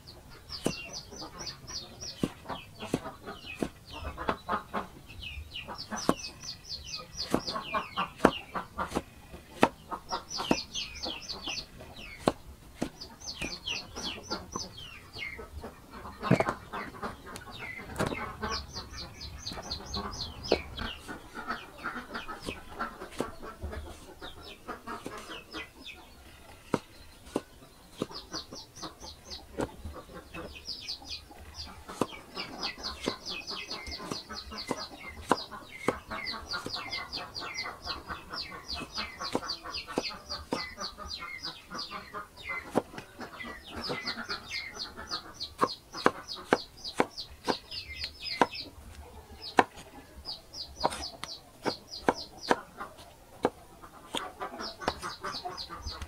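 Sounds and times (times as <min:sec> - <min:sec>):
birds chirping: 0:00.0 - 0:56.0
cleaver chopping on wooden block: 0:00.6 - 0:01.5, 0:02.1 - 0:03.8, 0:06.0 - 0:06.3, 0:07.2 - 0:14.7, 0:16.2 - 0:16.6, 0:17.9 - 0:18.2, 0:26.7 - 0:28.6, 0:31.9 - 0:37.1, 0:38.7 - 0:40.8, 0:45.4 - 0:48.7, 0:49.5 - 0:49.9, 0:50.8 - 0:52.7, 0:53.4 - 0:55.2.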